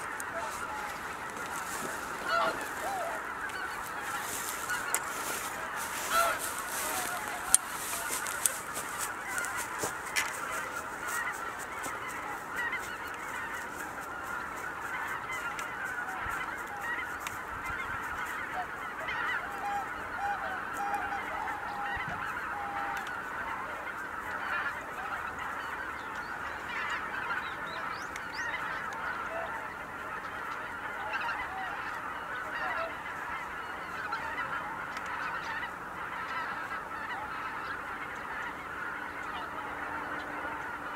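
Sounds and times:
geese honking: 0:00.0 - 0:40.9.

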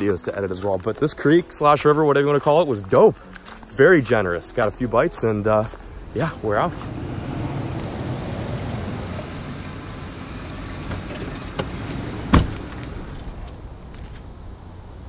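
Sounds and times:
engine and tyres rumbling: 0:00.0 - 0:15.0
car door shutting: 0:06.8 - 0:14.2.

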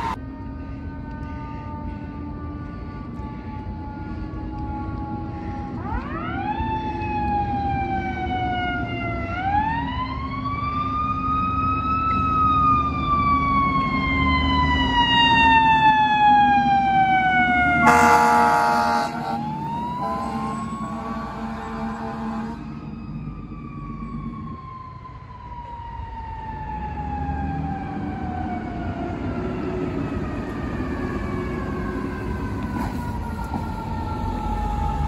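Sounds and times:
fire truck siren wailing: 0:00.0 - 0:35.0
loud horn blast: 0:17.8 - 0:22.8.

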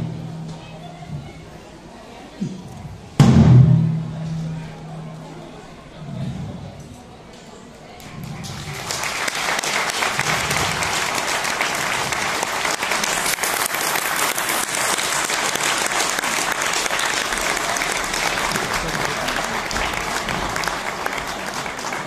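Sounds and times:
audience applauding: 0:08.0 - 0:22.0.

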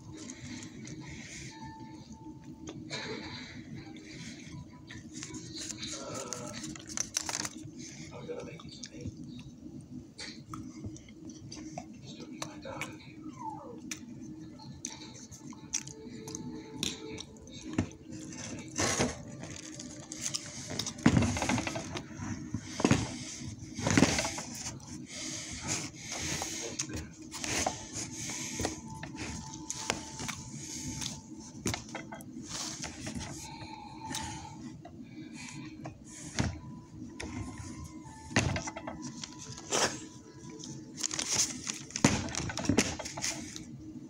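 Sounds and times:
faint background music: 0:00.0 - 0:44.0
steady low hum: 0:00.0 - 0:44.0
rustling and knocks of handling: 0:20.6 - 0:24.8.

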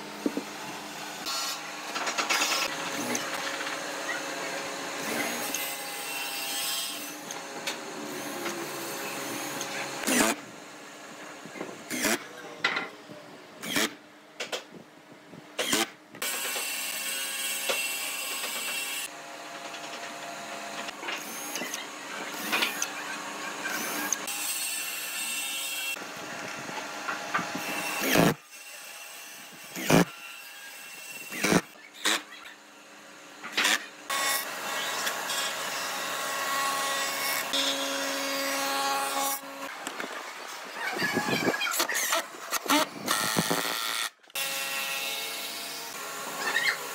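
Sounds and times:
cordless drill boring into wood: 0:27.5 - 0:28.4, 0:29.7 - 0:30.1, 0:31.2 - 0:32.2, 0:41.3 - 0:44.5.

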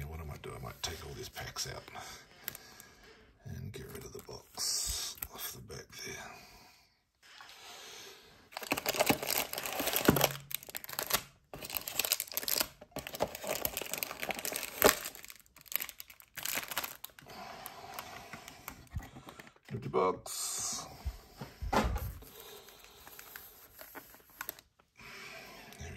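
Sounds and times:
cardboard rustling: 0:08.5 - 0:17.2, 0:22.0 - 0:24.7
foil packs crinkling: 0:08.5 - 0:18.2, 0:22.2 - 0:24.8.

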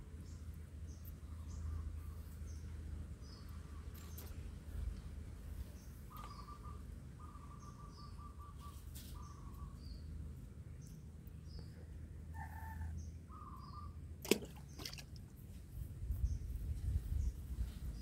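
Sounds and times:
lower bird calls: 0:05.7 - 0:10.1, 0:10.8 - 0:15.0
high bird chirps: 0:06.1 - 0:10.0.

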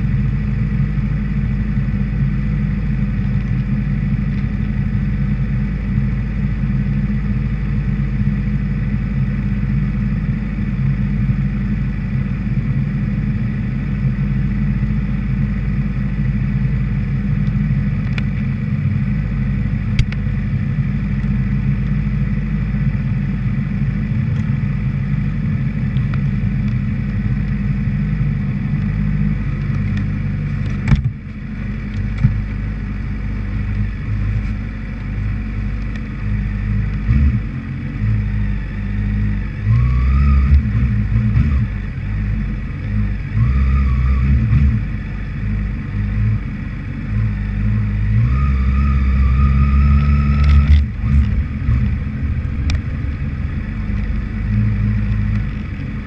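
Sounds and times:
motorcycle engine idling: 0:00.0 - 0:48.1, 0:49.9 - 0:56.0.

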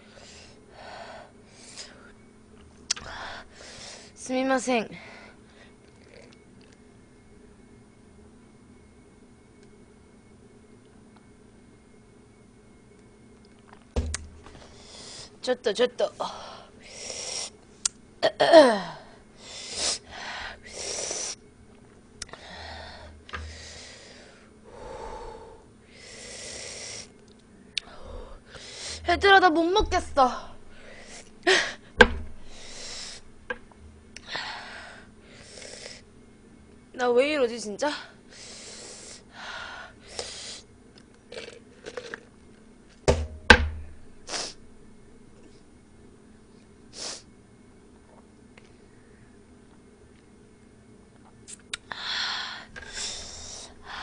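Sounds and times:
person breathing hard: 0:22.3 - 0:27.1, 0:30.7 - 0:33.2, 0:34.2 - 0:36.0, 0:38.2 - 0:40.6, 0:51.9 - 0:54.0.

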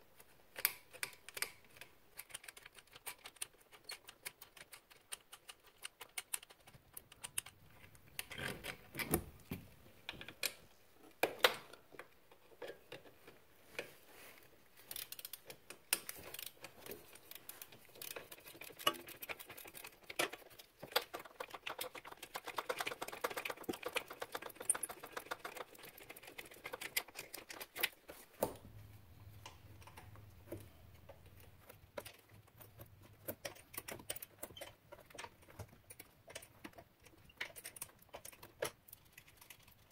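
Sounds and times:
faint low hum: 0:27.6 - 0:39.9.

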